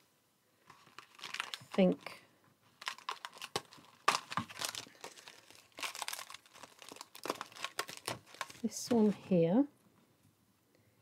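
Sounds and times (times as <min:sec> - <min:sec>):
paper rustling and crinkling: 0:00.6 - 0:09.2.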